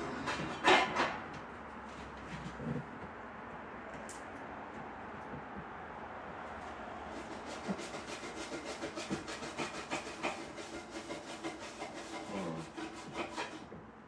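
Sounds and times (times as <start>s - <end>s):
dishes clinking and scraping at sink: 0.2s - 1.3s.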